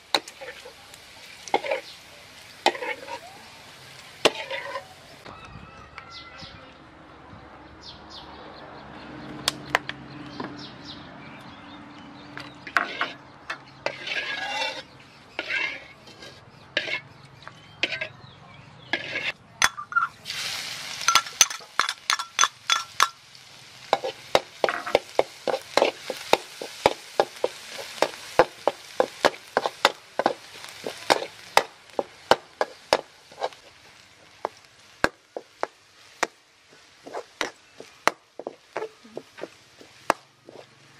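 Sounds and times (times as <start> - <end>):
garlic sizzling: 0.0 - 5.3, 12.6 - 17.2, 18.9 - 40.9
oil heating in a wok: 0.0 - 5.3, 12.4 - 17.1, 18.9 - 40.9
metal spatula scraping a wok: 0.1 - 3.3, 4.2 - 5.0, 12.4 - 17.2, 17.8 - 18.2, 18.8 - 20.2, 23.9 - 34.6, 36.7 - 40.9.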